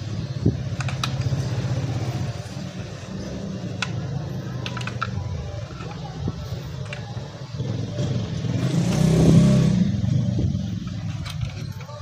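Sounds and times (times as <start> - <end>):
light clicks of plastic parts: 0.4 - 1.5, 3.7 - 7.2.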